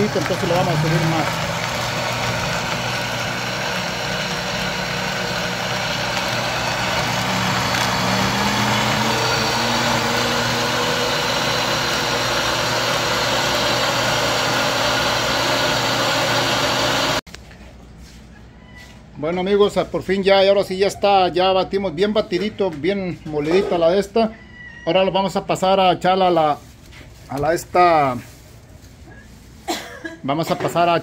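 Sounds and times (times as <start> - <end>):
blender motor whirring: 0.0 - 17.2.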